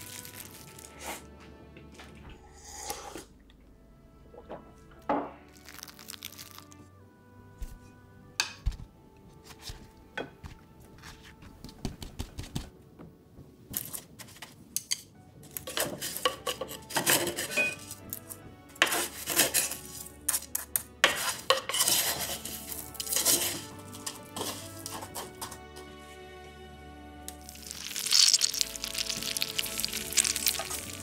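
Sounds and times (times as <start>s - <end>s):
wooden spoon scraping cornflakes: 0.0s - 1.3s, 5.5s - 6.8s, 15.5s - 25.6s, 27.4s - 31.0s.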